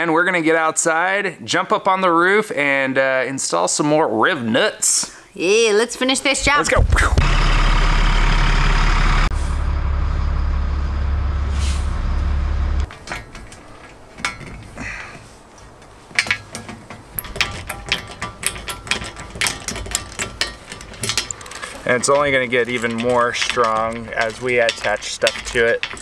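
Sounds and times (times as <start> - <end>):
bus engine running: 6.8 - 12.9
hand tools tapping on metal: 12.9 - 26.0.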